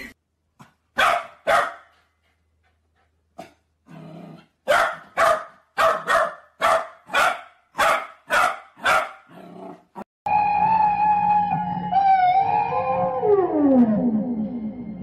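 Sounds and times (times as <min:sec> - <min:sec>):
dog barking: 0:01.0 - 0:02.0, 0:04.7 - 0:09.3
dog growling: 0:03.9 - 0:04.6, 0:09.3 - 0:10.0.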